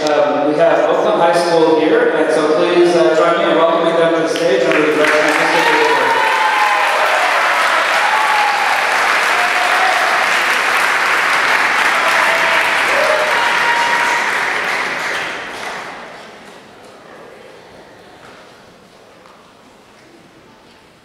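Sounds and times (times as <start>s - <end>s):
audience applauding: 4.3s - 16.8s.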